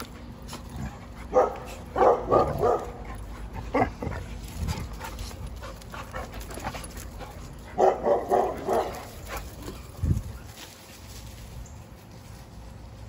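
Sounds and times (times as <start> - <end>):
puppy barking: 1.3 - 3.1, 7.8 - 9.1.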